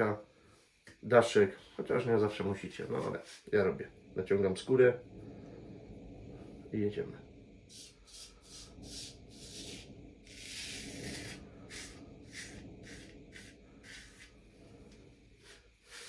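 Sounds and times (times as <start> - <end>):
razor scraping beard stubble: 7.7 - 14.4.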